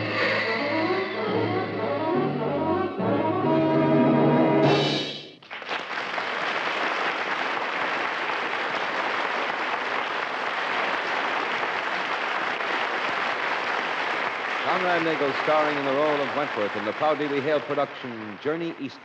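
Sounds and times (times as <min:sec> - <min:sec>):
audience applause: 0:05.4 - 0:19.0.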